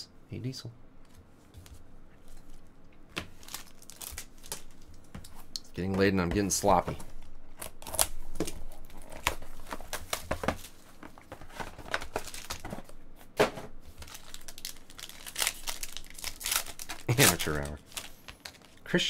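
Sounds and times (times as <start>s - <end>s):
foil pack crinkling: 2.3s - 5.1s, 7.2s - 13.0s, 13.9s - 18.9s.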